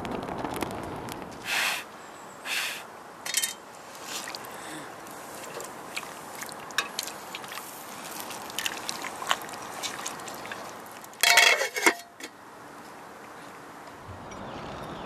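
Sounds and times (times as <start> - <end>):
steady hiss: 0.0 - 8.3
metal tongs scraping a pot: 3.3 - 3.6, 11.2 - 12.3
metallic clatter: 3.3 - 3.6.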